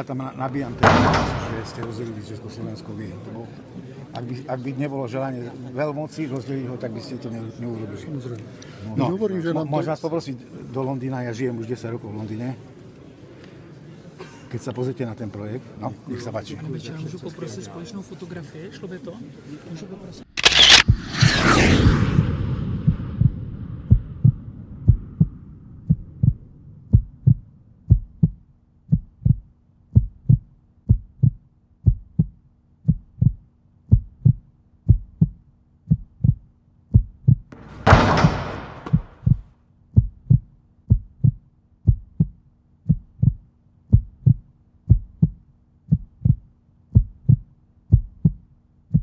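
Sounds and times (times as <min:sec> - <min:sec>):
crowded hall noise: 0:00.6 - 0:04.5
brief rushing noise: 0:20.4 - 0:26.7
heartbeat thumps: 0:22.6 - 0:37.5, 0:38.8 - 0:49.0.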